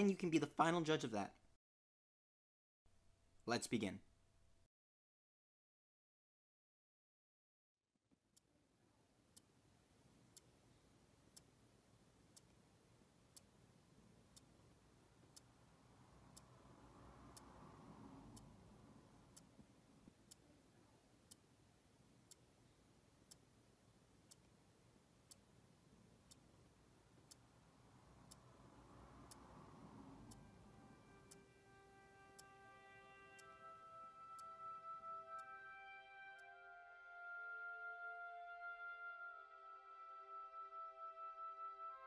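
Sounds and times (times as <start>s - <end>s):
faint low hum: 8.4s - 36.9s
clock ticking: 10.1s - 36.5s.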